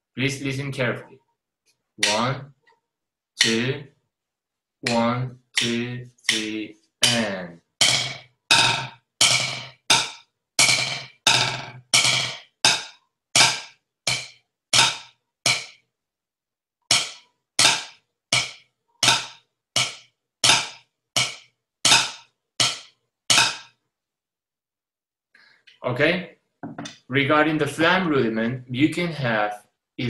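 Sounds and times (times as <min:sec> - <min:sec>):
drumsticks striking a practice pad: 0:02.0 - 0:02.3, 0:04.8 - 0:15.8, 0:16.9 - 0:23.7.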